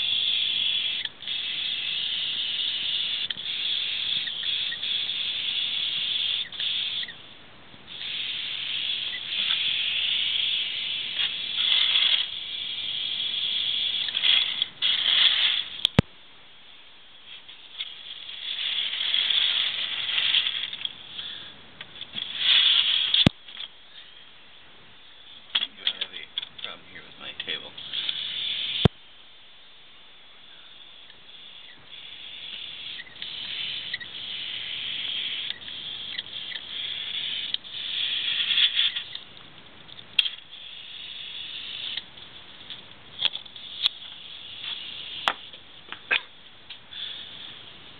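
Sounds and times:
airbrush spraying hiss: 0.0s - 7.2s, 7.9s - 15.8s, 27.8s - 28.9s, 31.3s - 39.2s, 40.5s - 42.1s, 43.6s - 45.5s, 46.9s - 47.9s.

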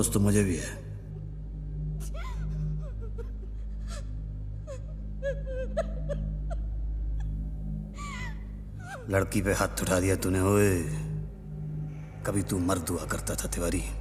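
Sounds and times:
low music drone: 0.0s - 14.0s
woman sobbing: 1.0s - 10.0s.

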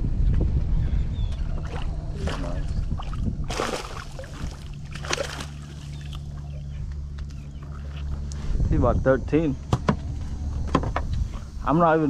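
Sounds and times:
boat motor humming: 0.0s - 12.0s
water splashing: 1.5s - 6.5s.

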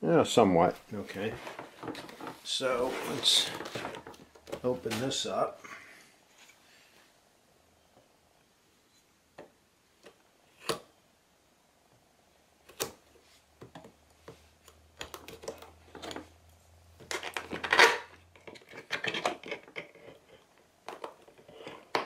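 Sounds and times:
tape tearing: 17.0s - 18.1s.

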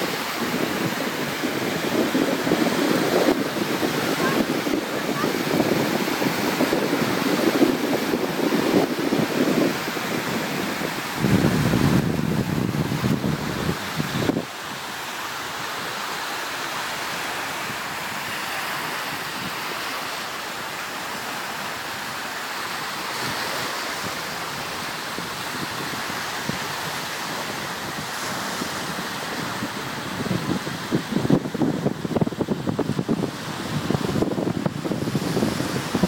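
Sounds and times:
wind buffeting microphone: 0.0s - 16.0s, 22.7s - 36.0s
waves breaking on beach: 0.0s - 36.0s.

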